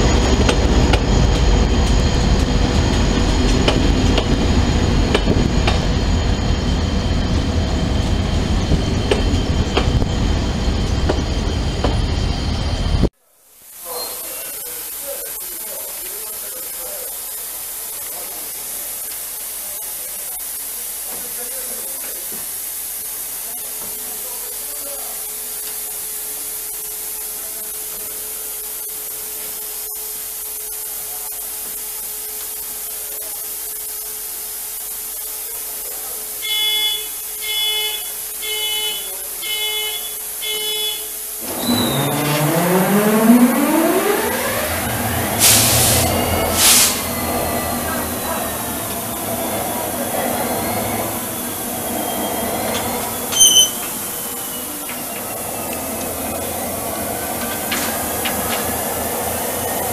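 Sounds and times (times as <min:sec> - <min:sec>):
diesel locomotive powering up: 0:00.0 - 0:13.1, 0:38.1 - 0:59.9
rising whine: 0:00.0 - 0:13.1, 0:40.4 - 0:59.9
steady hiss: 0:13.5 - 0:25.2
short beeps: 0:36.4 - 0:43.4, 0:53.3 - 0:54.8.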